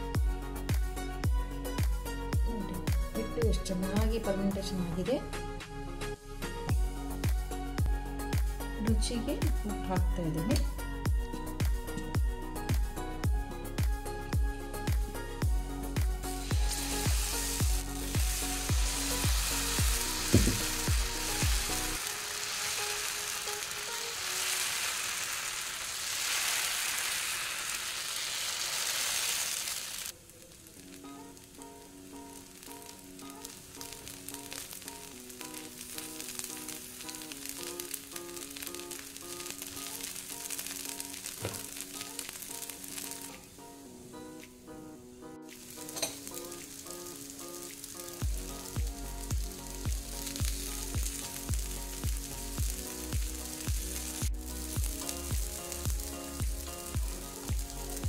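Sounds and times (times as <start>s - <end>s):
batter sizzling on a hot pan: 15.5s - 43.5s, 45.5s - 58.0s.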